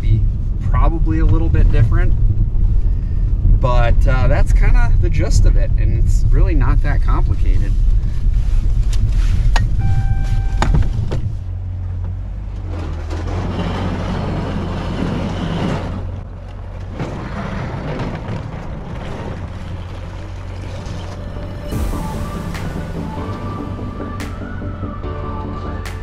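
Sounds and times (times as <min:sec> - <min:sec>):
truck engine running: 0:00.0 - 0:26.0
plow blade scraping snow and ice: 0:06.0 - 0:26.0
electronic beep: 0:09.8 - 0:11.2.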